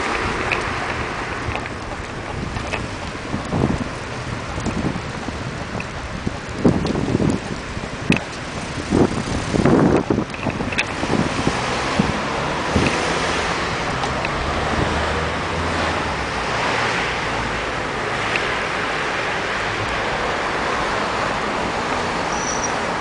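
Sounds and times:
car traffic: 0:00.0 - 0:23.0
wind on microphone: 0:00.0 - 0:23.0.

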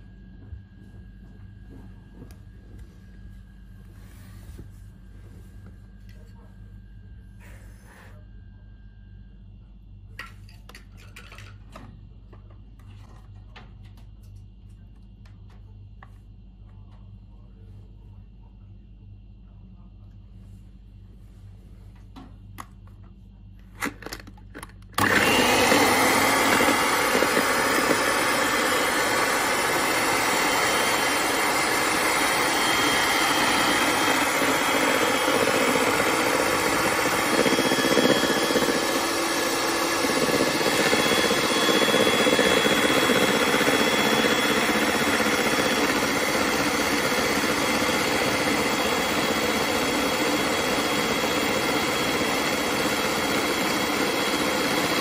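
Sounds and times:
electric hand mixer whisking: 0:25.0 - 0:55.0.

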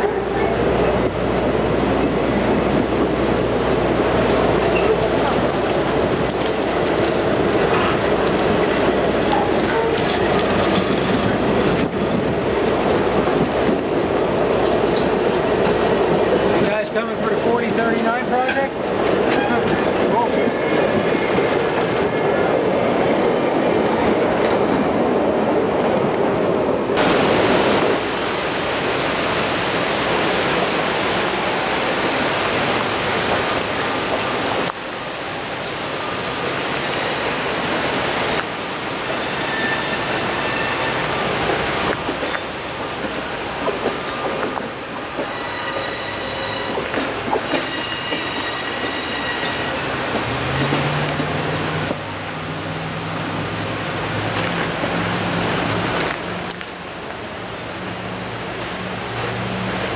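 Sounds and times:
train rumbling past: 0:00.0 - 0:59.9
high wheel squeal: 0:39.0 - 0:41.4, 0:45.2 - 0:50.0.

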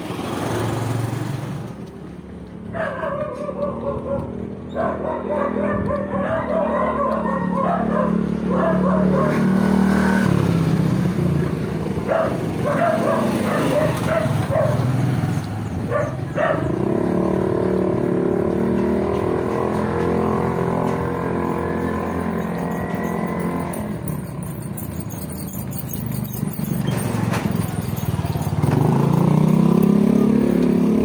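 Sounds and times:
dog barking: 0:02.7 - 0:09.5, 0:12.0 - 0:15.0, 0:15.9 - 0:16.8
motorcycle engine running: 0:07.5 - 0:31.0.

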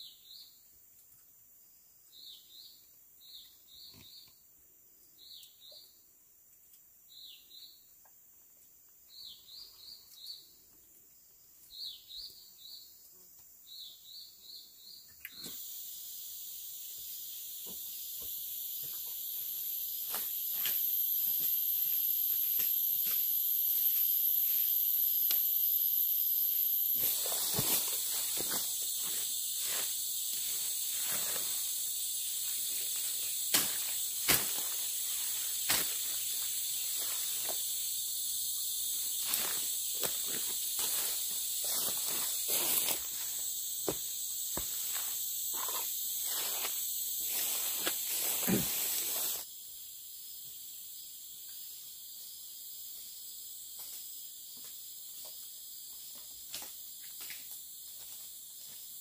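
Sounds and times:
insects droning: 0:00.0 - 0:59.0
fern fronds rustling: 0:26.5 - 0:37.7, 0:39.0 - 0:43.4, 0:44.5 - 0:49.4.

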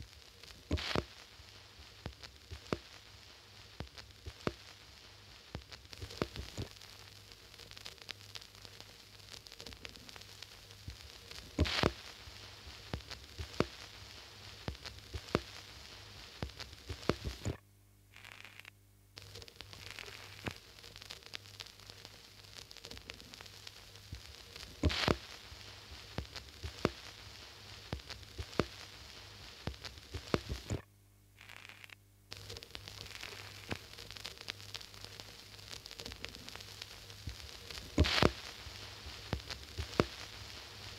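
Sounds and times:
static hiss: 0:00.0 - 0:40.9
clicks and pops: 0:00.5 - 0:01.2, 0:02.0 - 0:03.0, 0:03.8 - 0:04.7, 0:05.5 - 0:06.8, 0:09.6 - 0:12.2, 0:12.9 - 0:17.6, 0:18.2 - 0:22.0, 0:22.6 - 0:27.2, 0:27.8 - 0:30.8, 0:31.4 - 0:40.9.

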